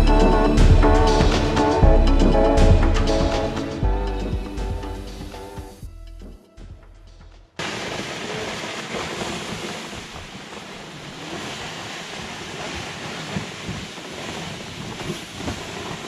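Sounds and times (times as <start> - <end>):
plastic sleds dragged across snow: 7.6 - 16.0
wind buffeting microphone: 9.0 - 16.0.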